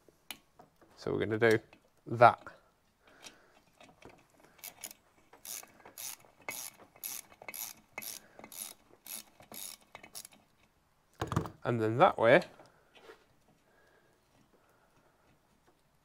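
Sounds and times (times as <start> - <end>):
socket ratchet clicking: 4.6 - 10.4.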